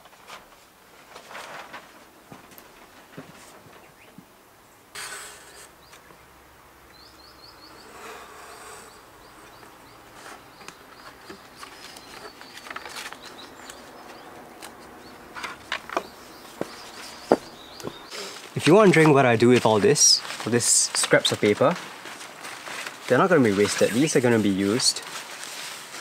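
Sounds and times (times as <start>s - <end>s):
paper rustling: 0.0s - 3.8s, 10.1s - 26.0s
small birds chirping: 5.2s - 21.8s.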